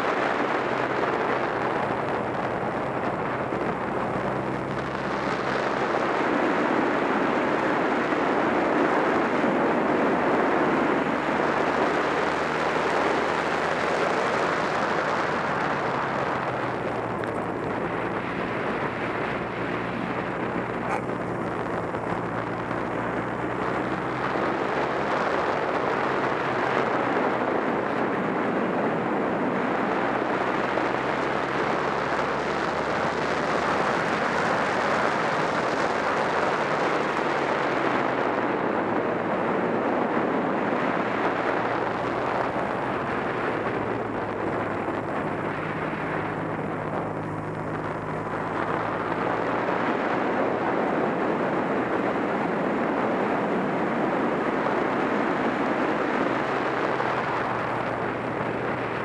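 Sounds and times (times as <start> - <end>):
motorcycle engine running: 0.0 - 39.8, 40.9 - 53.6
wind noise: 0.0 - 59.0.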